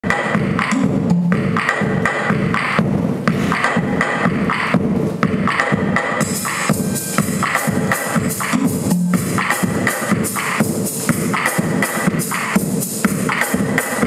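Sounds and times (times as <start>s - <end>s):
dance music over loudspeakers: 0.0s - 14.0s.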